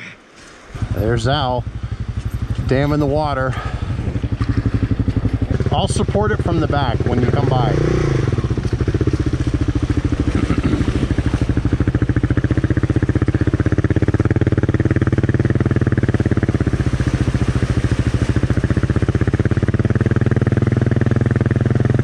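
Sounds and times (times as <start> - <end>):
water rushing: 0.0 - 22.0
motorcycle engine running at low revs: 0.7 - 22.0.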